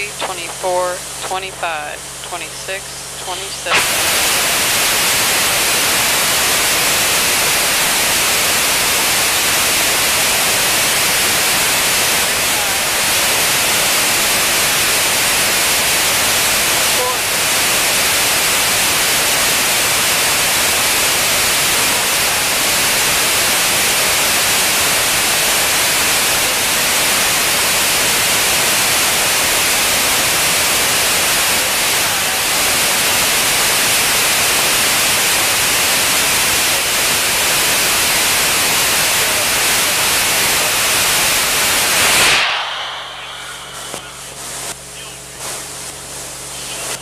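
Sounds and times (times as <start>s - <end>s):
rocket engine roaring: 41.3s - 45.0s.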